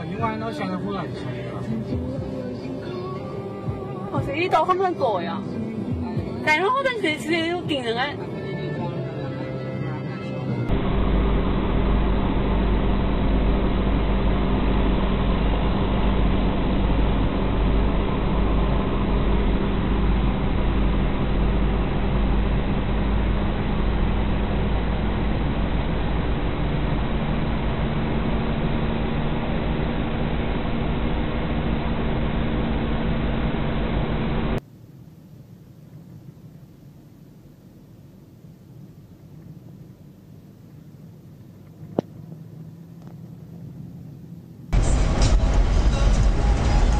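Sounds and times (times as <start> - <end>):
engine and road noise: 10.4 - 34.6, 35.9 - 46.9
quiet hiss: 16.6 - 44.7.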